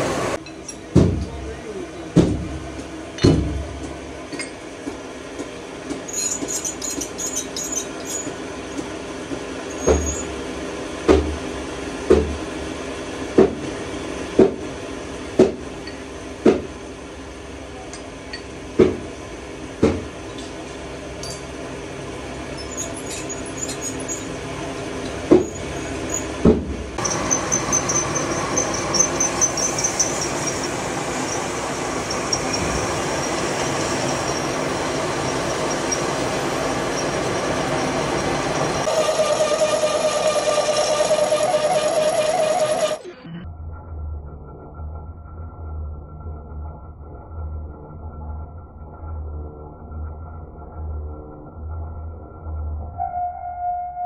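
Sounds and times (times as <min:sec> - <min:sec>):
metal lathe humming: 0:27.0 - 0:43.0
high fast-pulsing whine: 0:27.0 - 0:53.0.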